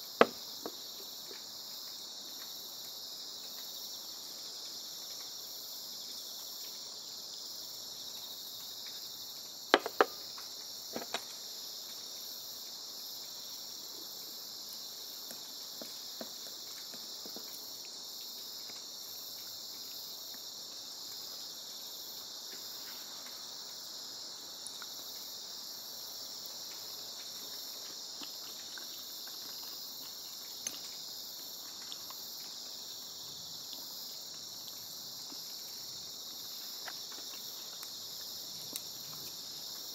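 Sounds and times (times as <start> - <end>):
insects chirring: 0.0 - 39.9
faint ticks: 1.2 - 7.0, 8.0 - 9.6, 16.6 - 21.3, 24.6 - 25.4, 33.6 - 39.9.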